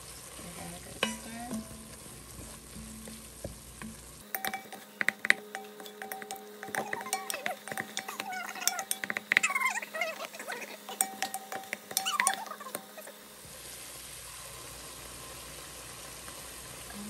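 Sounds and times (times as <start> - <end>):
meat sizzling: 0.0 - 17.0
wooden spoon scraping a pot: 4.3 - 13.2.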